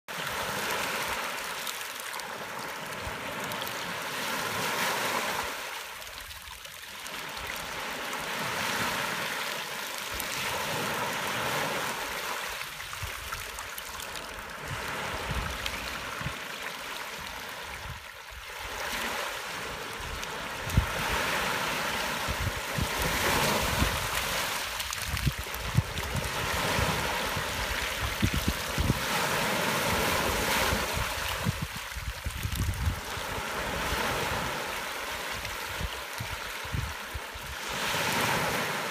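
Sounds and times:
waves washing on gravel beach: 0.1s - 38.9s
wind thumps on microphone: 22.2s - 24.2s, 25.0s - 29.2s, 29.8s - 34.4s.

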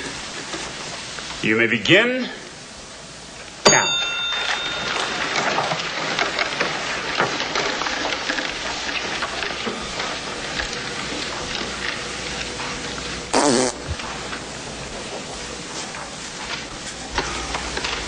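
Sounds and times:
sharp ringing sound: 3.6s - 5.7s.

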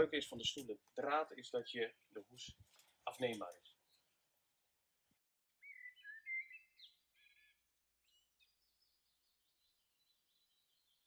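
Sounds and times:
songbird singing: 5.5s - 11.0s.

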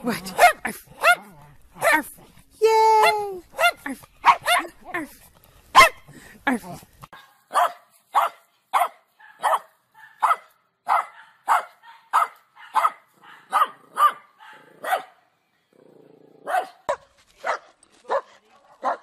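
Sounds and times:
small dog barking: 0.3s - 2.0s, 3.1s - 4.8s, 5.8s - 6.0s, 7.1s - 15.2s, 16.4s - 19.0s.

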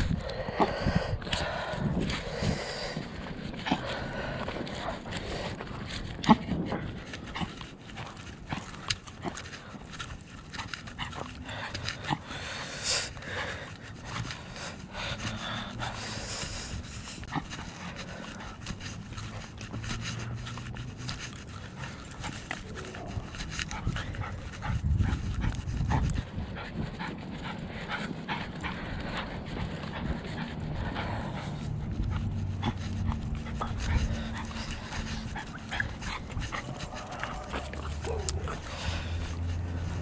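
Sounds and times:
footsteps: 0.0s - 40.0s
panting breaths: 0.0s - 40.0s
low rumble: 13.2s - 40.0s.

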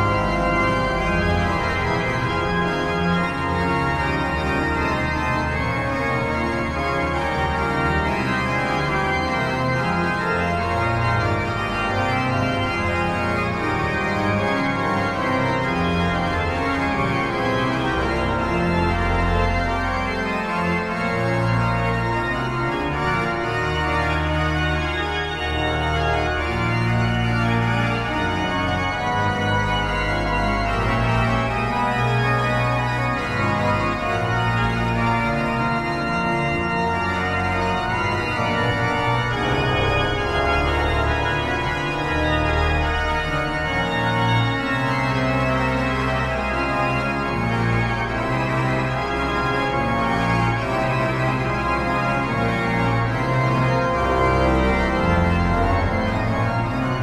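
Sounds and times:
pipe organ playing chords: 0.0s - 57.0s.

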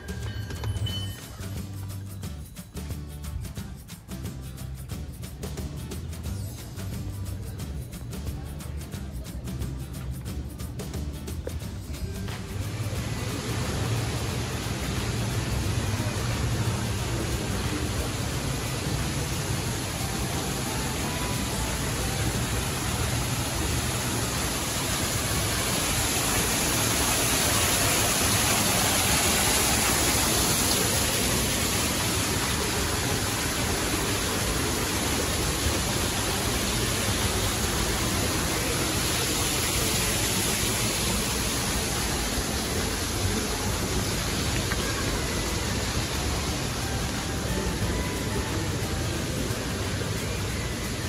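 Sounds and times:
steady rushing noise: 12.3s - 51.0s.

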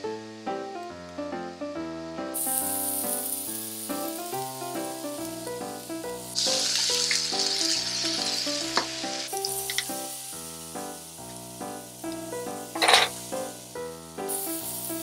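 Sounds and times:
background music: 0.0s - 15.0s
food sizzling in frying pan: 2.3s - 15.0s.

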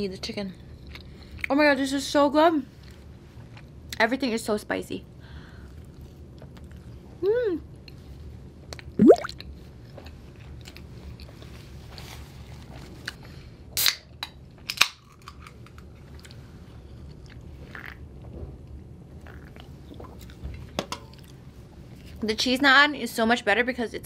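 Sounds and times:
wet mouth clicks: 9.0s - 9.3s.

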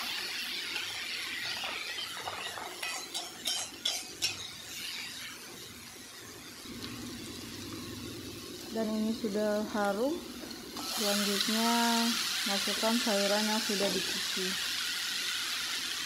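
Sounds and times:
spice paste sizzling in oil: 0.0s - 16.0s
metal spatula scraping pan: 0.8s - 5.4s
spatula clinking against pan: 2.8s - 4.4s.

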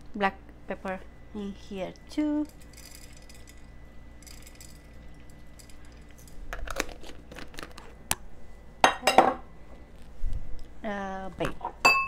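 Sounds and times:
pepper grinder crunching: 2.4s - 8.2s.

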